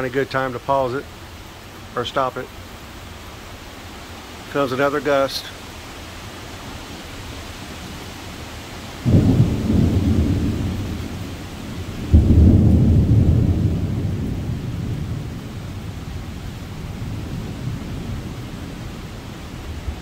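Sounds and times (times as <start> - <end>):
rain: 0.0 - 20.0
wind: 0.0 - 20.0
thunder rumble: 9.0 - 20.0.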